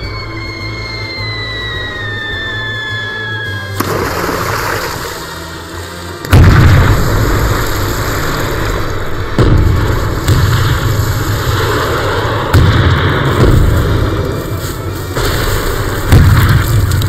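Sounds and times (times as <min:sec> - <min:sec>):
steady rushing noise: 0:00.0 - 0:17.0
artillery shells exploding: 0:06.3 - 0:14.4, 0:15.2 - 0:17.0.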